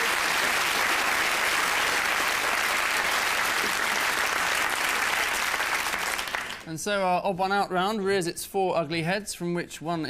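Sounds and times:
audience applauding: 0:00.0 - 0:06.7.

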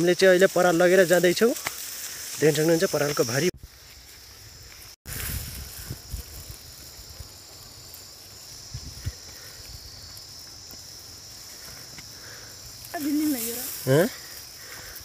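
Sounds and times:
chorus of insects: 0:00.0 - 0:15.0.

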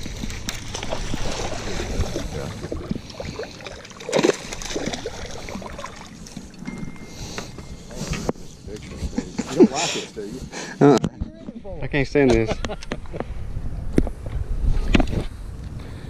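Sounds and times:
fish splashing at water surface: 0:00.0 - 0:06.2
water sloshing: 0:00.0 - 0:07.6.

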